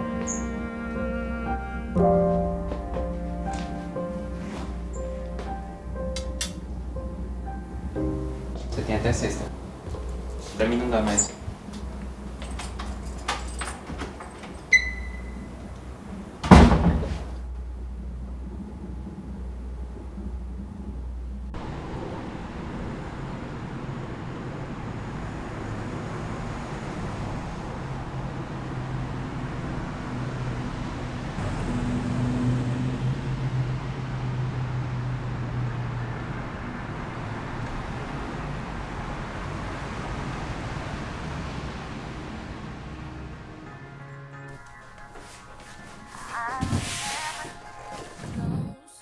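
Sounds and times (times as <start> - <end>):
bus engine running: 0.0 - 44.5
street traffic: 0.0 - 48.7.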